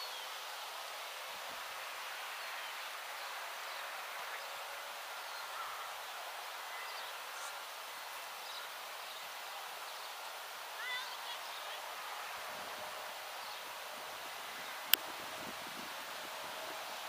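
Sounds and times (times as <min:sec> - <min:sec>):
outdoor background hiss: 0:00.0 - 0:17.0
faint bird chirps: 0:02.3 - 0:10.2.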